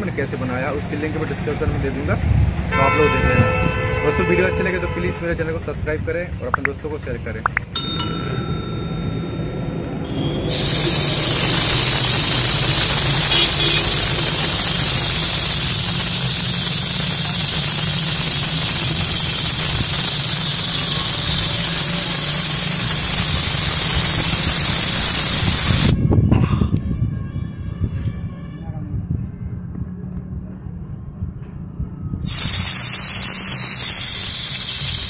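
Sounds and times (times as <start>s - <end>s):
compressed air and water hissing: 10.4s - 26.0s, 32.2s - 35.0s.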